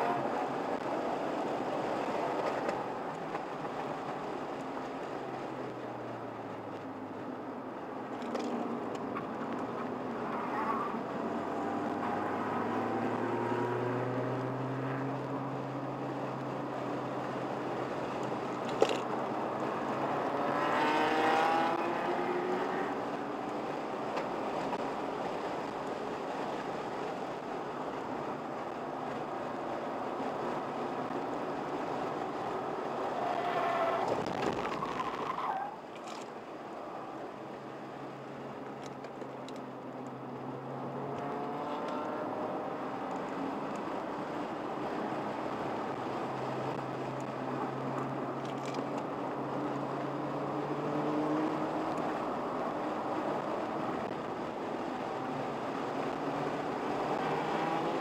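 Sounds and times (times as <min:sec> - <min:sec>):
wind noise: 0:15.6 - 0:35.4
car engine accelerating: 0:19.3 - 0:23.1, 0:40.1 - 0:47.0, 0:55.1 - 0:58.0.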